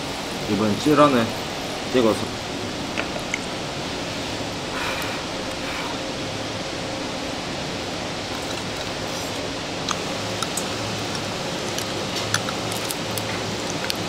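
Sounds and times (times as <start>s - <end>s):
utensil clicks: 8.3s - 14.0s.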